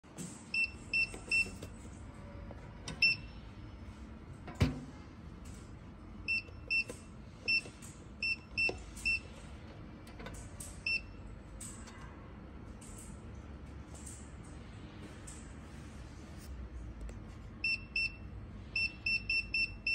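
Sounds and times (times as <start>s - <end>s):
keypad beeping: 0.5s - 1.7s, 2.9s - 3.4s, 6.2s - 9.3s, 10.7s - 11.2s, 18.8s - 19.9s.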